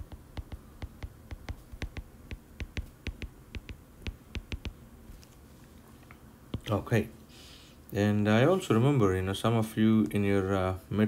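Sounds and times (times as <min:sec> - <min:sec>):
stylus tapping on glass screen: 0:00.0 - 0:04.8.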